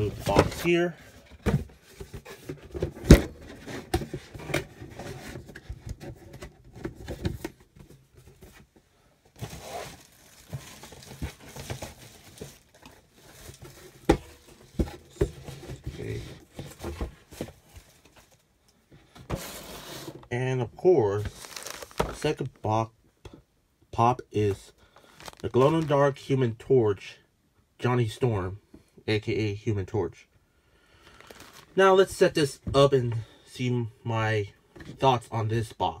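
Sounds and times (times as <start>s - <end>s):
cardboard and packing material crinkling: 9.4s - 18.4s, 21.2s - 22.5s, 25.0s - 26.2s, 31.0s - 31.8s.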